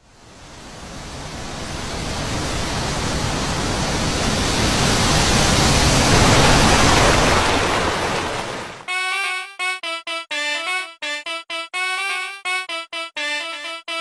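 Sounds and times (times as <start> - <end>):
rushing noise: 0.0 - 8.9.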